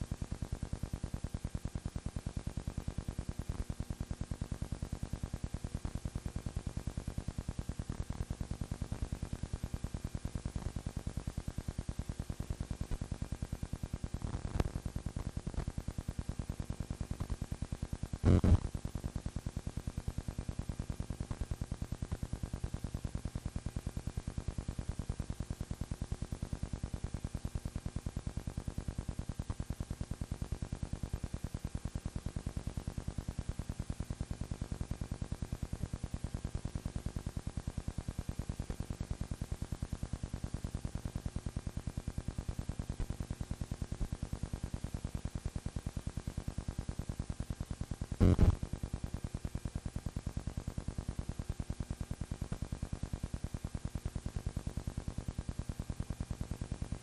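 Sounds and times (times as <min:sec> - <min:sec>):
crackle: 0:00.0 - 0:57.0
low hum: 0:18.2 - 0:18.7, 0:48.2 - 0:48.8.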